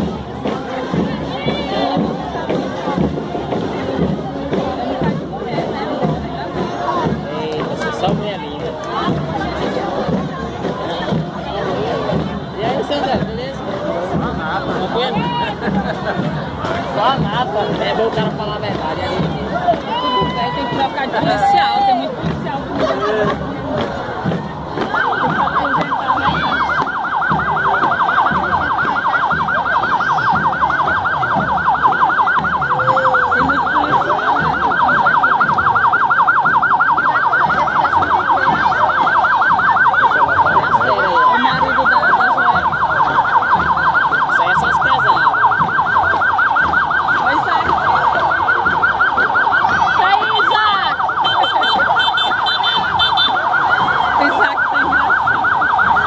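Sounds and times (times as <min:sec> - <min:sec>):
crowd noise: 0:00.0 - 0:56.0
siren yelping: 0:24.6 - 0:56.0.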